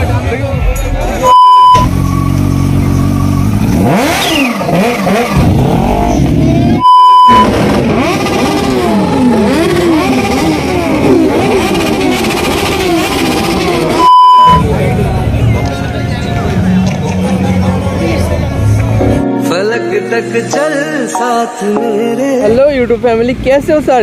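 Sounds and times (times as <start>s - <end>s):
loud steady beep: 1.2s - 1.9s, 6.8s - 7.6s, 13.9s - 14.7s
motorcycle engines revving: 1.6s - 19.2s.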